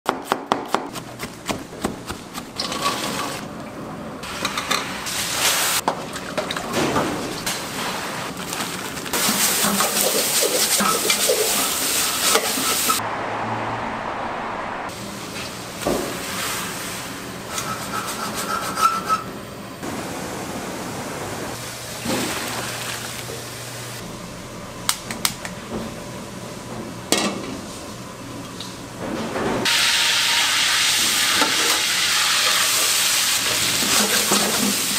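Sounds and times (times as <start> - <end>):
knife chopping on cutting board: 0.1 - 2.5
pots and pans clattering: 9.2 - 13.0, 33.6 - 34.9.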